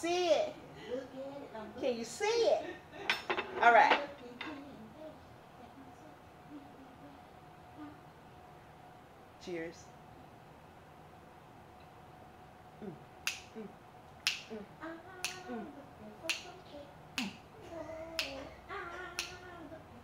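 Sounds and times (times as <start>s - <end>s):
woman humming: 4.5s - 8.1s, 12.8s - 13.8s, 14.4s - 20.0s
fingers snapping: 13.2s - 13.5s, 14.2s - 14.5s, 15.2s - 15.5s, 16.3s - 16.6s, 17.2s - 17.4s, 18.2s - 18.4s, 19.2s - 19.4s.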